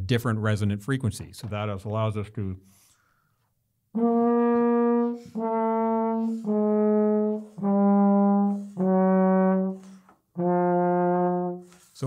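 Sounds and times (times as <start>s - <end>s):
plastic trombone held notes: 4.0s - 11.7s.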